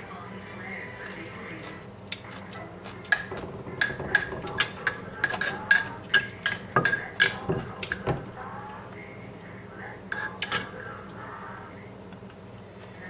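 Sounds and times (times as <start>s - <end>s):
pestle clinking in clay mortar: 3.0s - 8.4s.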